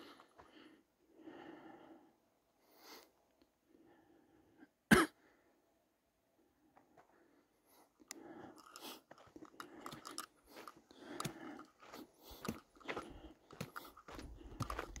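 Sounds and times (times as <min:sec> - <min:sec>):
footsteps crunching on dirt: 0:09.1 - 0:15.0.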